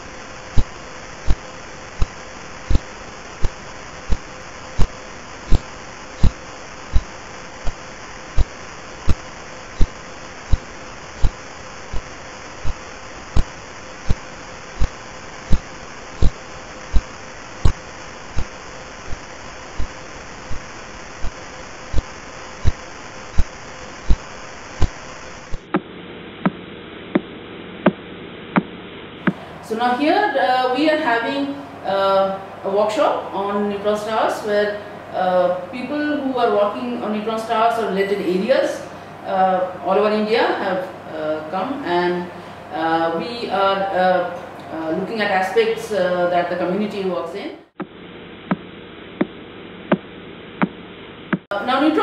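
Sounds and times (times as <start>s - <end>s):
sharp radio pulse thumps: 0.0s - 29.6s, 47.7s - 51.6s
receiver noise hiss: 0.0s - 52.0s.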